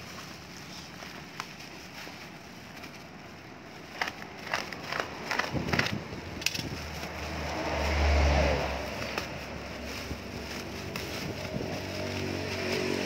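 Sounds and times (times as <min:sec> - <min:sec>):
vehicle engine rumble passing: 0:01.6 - 0:13.0
sharp clicks from handling objects: 0:03.9 - 0:07.1.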